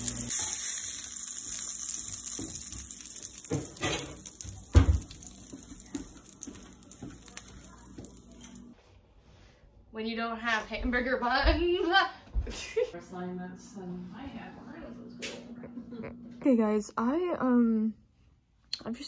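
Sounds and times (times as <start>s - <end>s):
pan and utensils clinking: 0.0s - 5.9s
patty sizzling in a frying pan: 0.0s - 8.8s.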